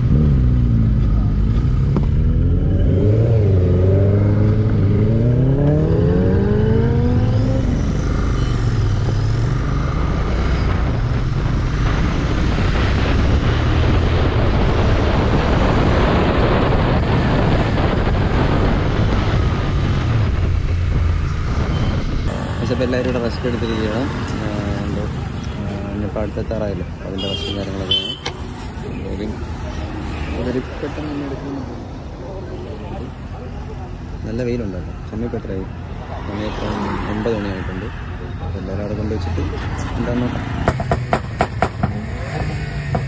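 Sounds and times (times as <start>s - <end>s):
wind rushing over microphone: 2.2s - 22.6s.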